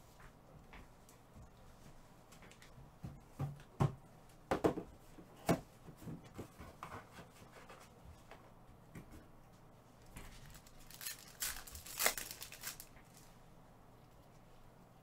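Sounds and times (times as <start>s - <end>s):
objects knocking on a table: 3.4s - 4.9s.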